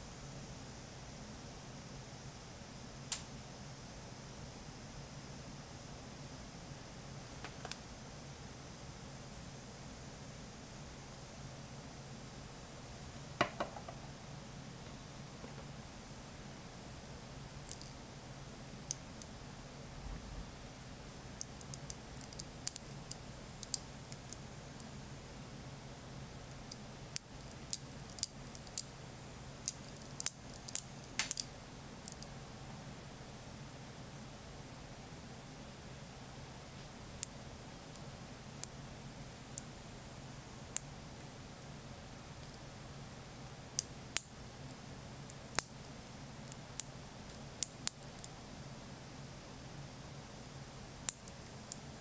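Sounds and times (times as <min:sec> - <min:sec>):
magnet balls clicking: 0:17.6 - 0:18.0, 0:21.4 - 0:24.4, 0:29.6 - 0:32.3
magnet balls clicking together: 0:29.6 - 0:32.3.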